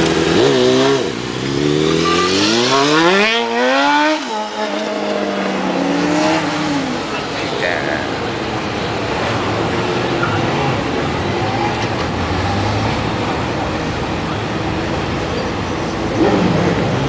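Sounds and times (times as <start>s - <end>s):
distant motorcycle engines: 0.0s - 17.0s.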